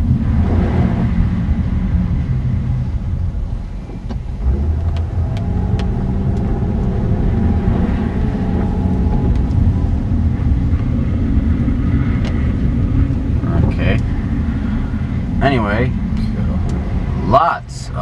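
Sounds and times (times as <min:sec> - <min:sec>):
car rumble on wet road: 0:00.0 - 0:18.0.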